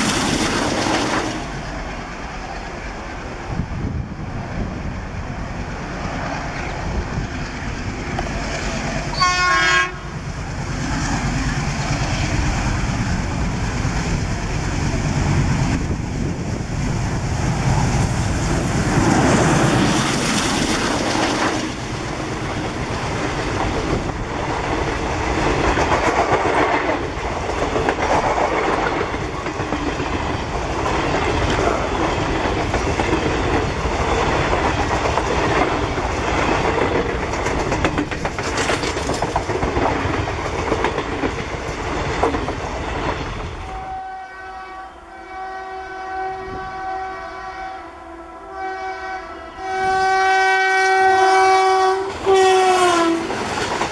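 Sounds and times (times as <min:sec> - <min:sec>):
train wheels clattering on rails: 0:00.0 - 0:01.8, 0:10.2 - 0:43.7, 0:52.1 - 0:53.9
train horn: 0:09.1 - 0:10.2, 0:43.6 - 0:53.4.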